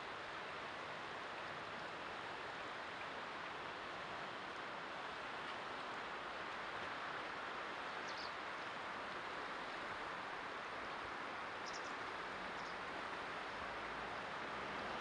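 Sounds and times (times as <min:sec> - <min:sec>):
fast-flowing river rushing: 0:00.0 - 0:15.0
bird chirps: 0:11.6 - 0:11.9.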